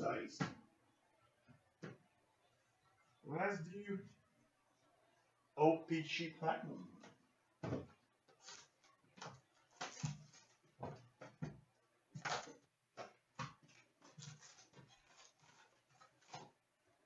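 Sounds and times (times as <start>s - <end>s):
cardboard and wrapper crinkling: 8.3s - 10.7s, 13.6s - 16.6s.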